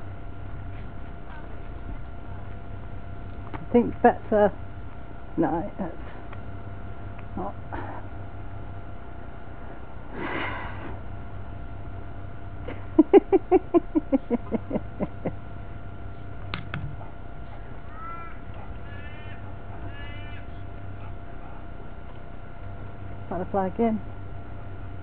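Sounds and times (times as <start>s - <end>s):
crow cawing: 17.8s - 20.6s.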